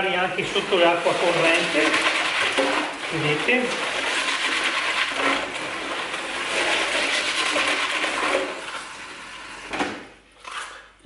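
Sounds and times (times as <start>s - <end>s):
tap water running into sink: 0.4s - 9.0s.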